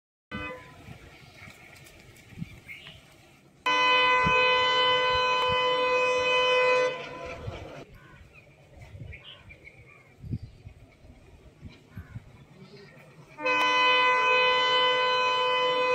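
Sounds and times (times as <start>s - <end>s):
locomotive air horn blast: 0.3s - 0.9s, 3.7s - 7.8s, 13.3s - 15.9s.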